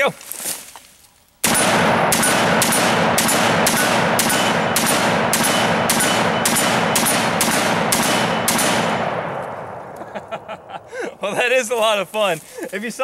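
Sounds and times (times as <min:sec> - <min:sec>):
rifle shots with echo: 0:01.4 - 0:10.4.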